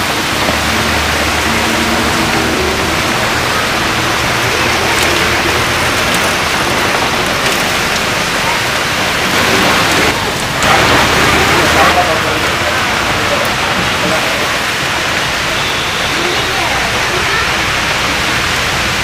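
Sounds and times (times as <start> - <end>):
faint passing traffic hum: 0.0 - 13.8
heavy rain on road: 0.0 - 19.0.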